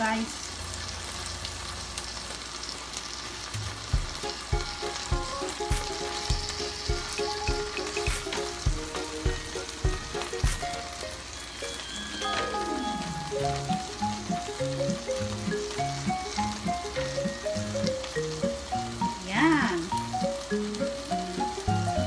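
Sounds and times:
fish sizzling in a frying pan: 0:00.0 - 0:22.0
background music with a beat: 0:03.6 - 0:11.3.

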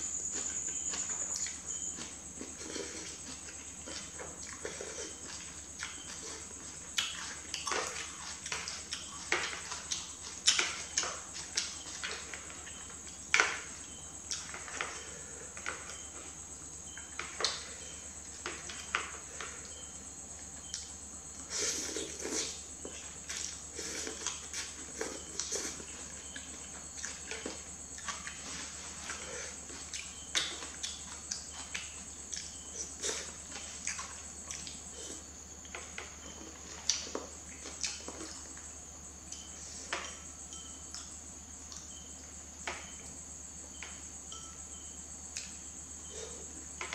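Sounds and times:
faint high-pitched whine: 0:00.0 - 0:46.9
chewing and slurping noodles: 0:00.2 - 0:13.2, 0:20.6 - 0:38.6.

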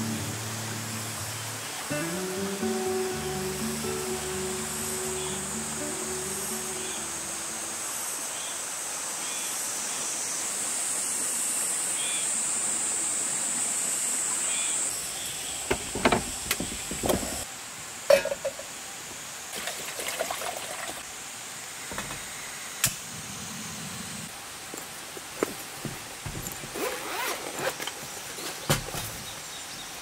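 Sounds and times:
outdoor rushing hiss: 0:00.0 - 0:26.8
metal stove and cup clattering: 0:18.1 - 0:18.7.

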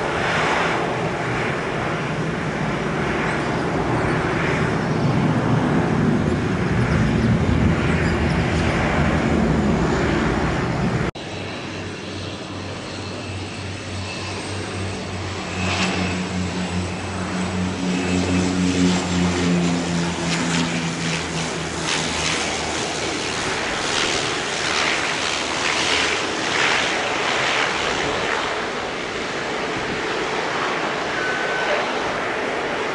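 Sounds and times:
deep aircraft engine rumble: 0:00.0 - 0:32.9
propeller aircraft droning: 0:00.0 - 0:32.9
faint high whine: 0:30.4 - 0:32.5.

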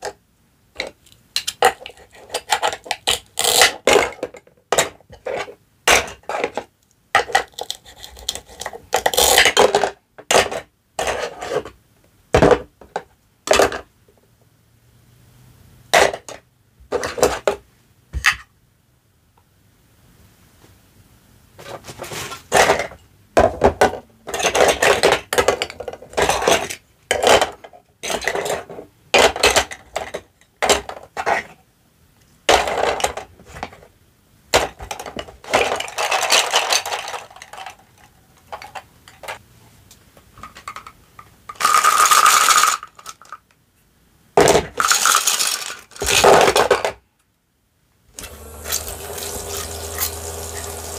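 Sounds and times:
plastic toy dishes clattering: 0:00.8 - 0:11.8, 0:12.4 - 0:13.9, 0:15.9 - 0:18.5, 0:22.5 - 0:31.6, 0:32.5 - 0:33.9, 0:34.5 - 0:39.4, 0:40.4 - 0:43.5, 0:44.4 - 0:47.0.

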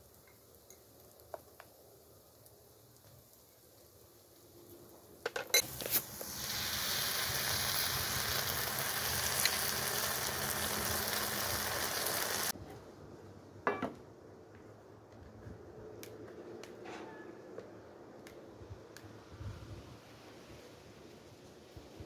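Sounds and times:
nuts sizzling in hot oil: 0:00.0 - 0:12.6.

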